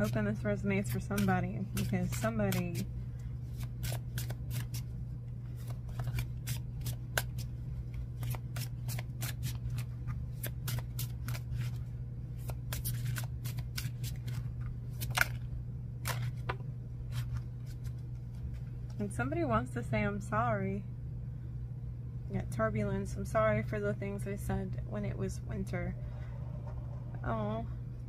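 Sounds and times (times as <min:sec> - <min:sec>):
low steady hum: 0:00.0 - 0:28.0
cards being shuffled: 0:00.8 - 0:04.9, 0:05.5 - 0:19.0.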